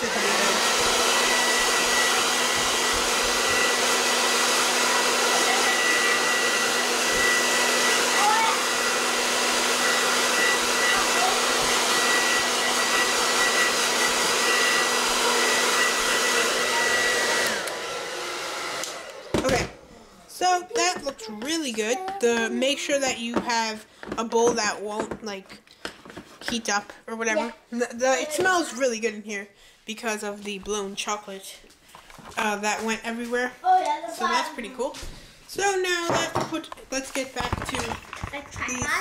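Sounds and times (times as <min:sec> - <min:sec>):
hair dryer running: 0:00.0 - 0:25.4, 0:35.0 - 0:39.0.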